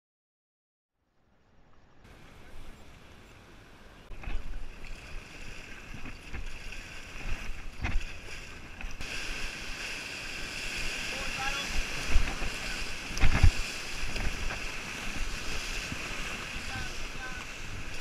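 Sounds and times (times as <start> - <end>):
rushing river rapids: 2.1 - 18.0
wind on microphone: 4.1 - 18.0
hiss of rushing water: 9.0 - 18.0.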